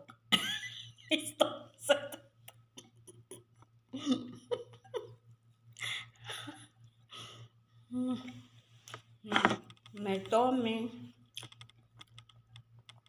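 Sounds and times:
woman giggling softly: 3.1s - 5.2s.

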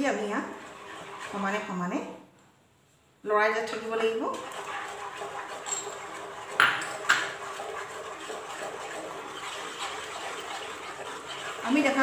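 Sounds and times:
spatula scraping pan: 0.0s - 2.1s, 3.5s - 12.0s
spatula knocking against pan: 6.6s - 7.3s.

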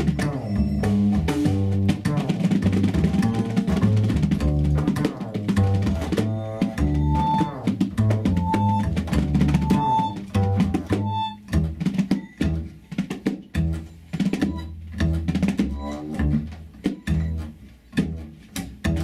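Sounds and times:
double bass notes: 0.0s - 19.0s
hand drum strokes: 0.0s - 19.0s
vibraphone tone: 6.1s - 7.6s, 8.2s - 11.4s.

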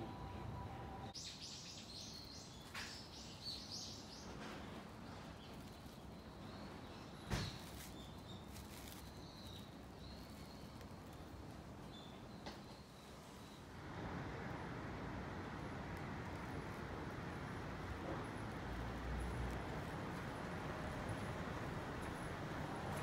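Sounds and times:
faint outdoor background noise: 0.0s - 23.0s
small birds chirping: 1.1s - 13.8s.

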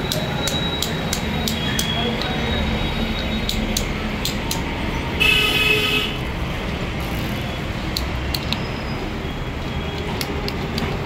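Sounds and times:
low traffic rumble: 0.0s - 11.0s
vehicle horn: 5.2s - 6.2s.

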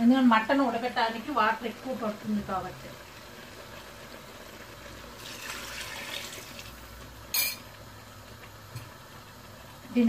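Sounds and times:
water pouring into a pot: 1.6s - 8.4s.

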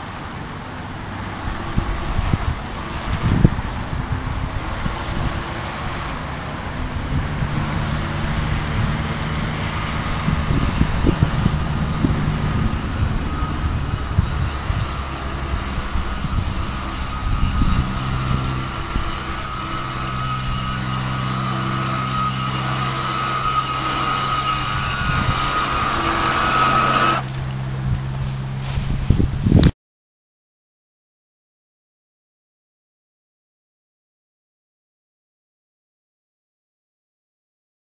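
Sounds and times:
toy boat electric motor whining: 0.0s - 28.2s
low steady drone: 0.0s - 28.6s
wind on microphone: 0.0s - 29.8s.

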